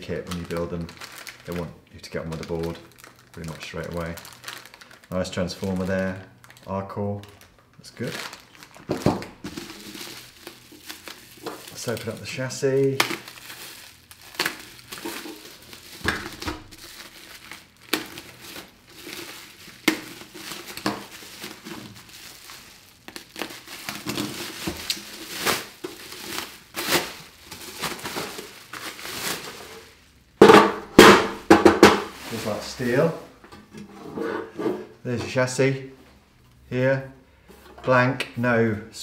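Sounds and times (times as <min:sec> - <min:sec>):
bubble wrap crinkling: 0:00.0 - 0:33.4.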